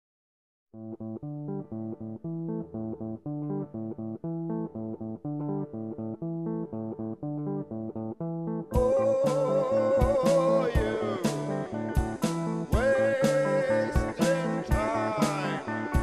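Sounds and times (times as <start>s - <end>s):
guitar riff: 0.8s - 16.0s
full band with drums: 8.8s - 13.4s, 14.0s - 16.0s.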